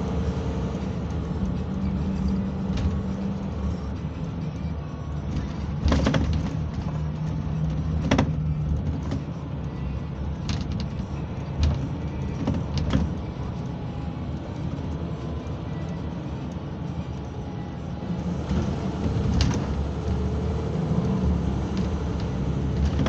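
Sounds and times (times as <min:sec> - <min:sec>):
engine hum: 0:00.0 - 0:23.0
road noise: 0:00.0 - 0:23.0
knocks and rattles from bus body: 0:01.1 - 0:03.6, 0:05.2 - 0:09.5, 0:10.3 - 0:13.4, 0:18.4 - 0:20.3, 0:21.2 - 0:23.0.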